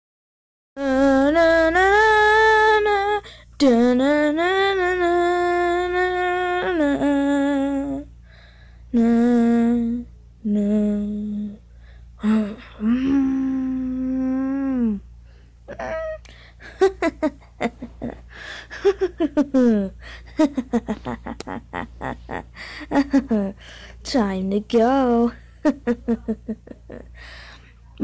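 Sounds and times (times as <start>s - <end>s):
person humming slow tune: 0.8s - 8.2s, 8.9s - 15.1s, 15.7s - 23.6s.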